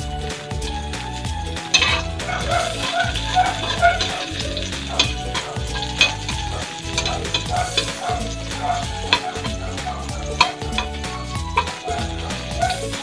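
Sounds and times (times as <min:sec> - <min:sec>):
onion sizzling in oil: 0:00.2 - 0:13.0
metal spatula scraping a pan: 0:01.7 - 0:13.0.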